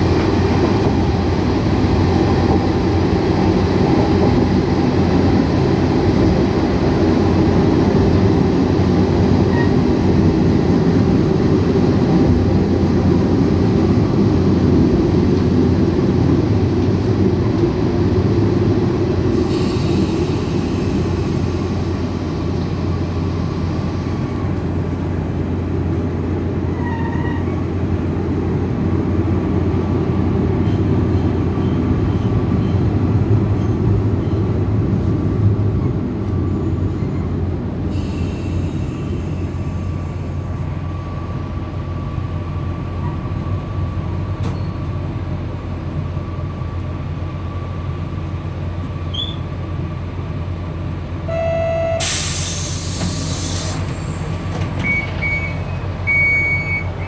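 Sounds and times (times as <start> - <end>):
train rumble: 0.0 - 57.0
air release hiss: 52.0 - 54.2
short high beeps: 54.8 - 57.0.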